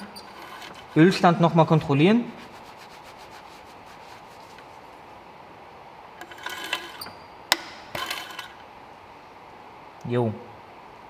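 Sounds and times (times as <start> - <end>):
dipstick scraping in tube: 0.0 - 1.2.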